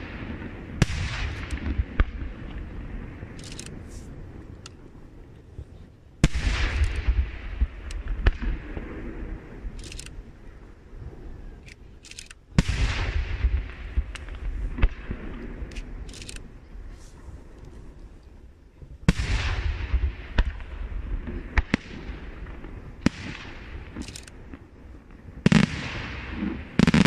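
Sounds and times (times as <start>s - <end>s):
sharp firework cracks: 0.0s - 3.9s, 6.2s - 10.2s, 12.5s - 16.5s, 19.1s - 27.0s
firework booms: 0.0s - 4.4s, 6.2s - 9.8s, 12.5s - 16.1s, 19.0s - 27.0s.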